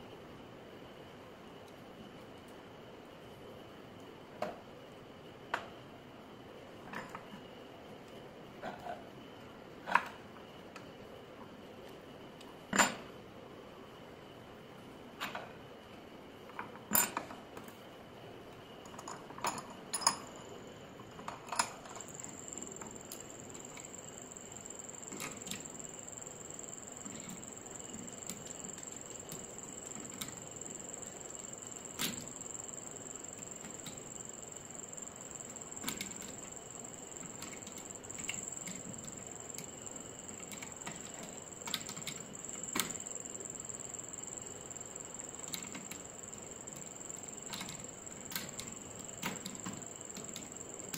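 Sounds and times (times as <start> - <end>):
steady high whine: 20.2 - 50.9.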